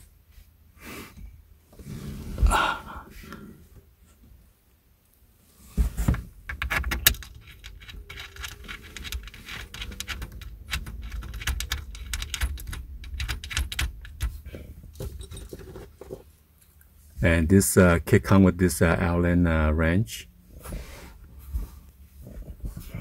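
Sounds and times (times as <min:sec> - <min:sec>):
metal screw clinking and scraping: 0:06.5 - 0:14.4, 0:15.0 - 0:16.8.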